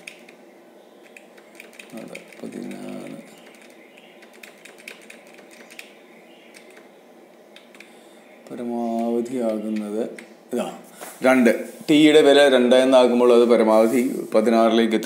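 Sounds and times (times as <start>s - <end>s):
keyboard keys clicking: 1.0s - 5.9s, 6.5s - 6.9s.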